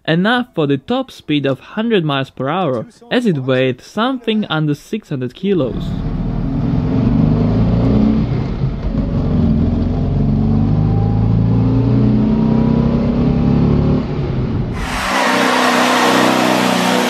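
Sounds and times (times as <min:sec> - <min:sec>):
car engine running under load: 0:05.8 - 0:17.0
hiss: 0:14.8 - 0:17.0.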